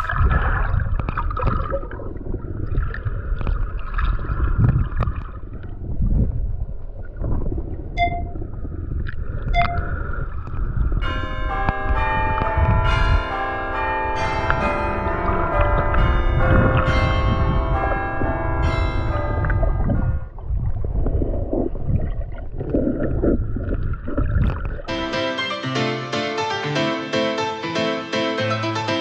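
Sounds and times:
muffled underwater rumbling: 0.0s - 25.0s
bell ringing: 11.0s - 20.3s.

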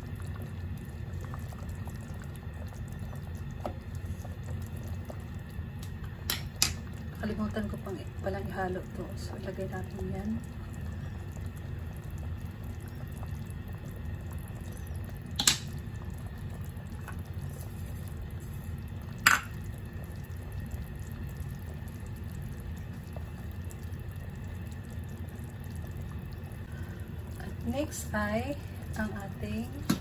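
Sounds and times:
broth simmering: 0.0s - 30.0s.

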